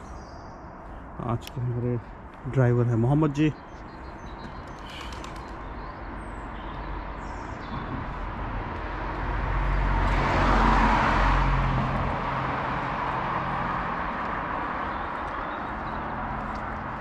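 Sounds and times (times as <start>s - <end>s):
vehicle passing by: 7.9s - 17.0s.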